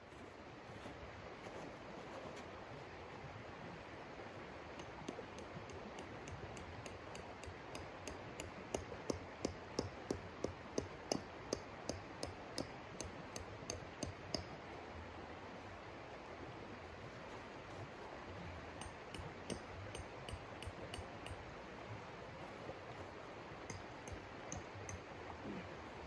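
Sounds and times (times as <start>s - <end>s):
tent stake being tapped: 4.8s - 14.6s, 18.8s - 21.4s, 23.7s - 25.1s.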